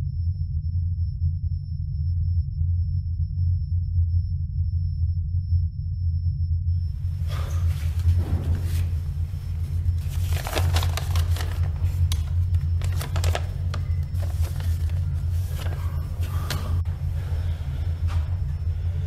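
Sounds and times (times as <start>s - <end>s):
low steady drone: 0.0s - 19.0s
paper sheets rustling: 7.2s - 16.8s.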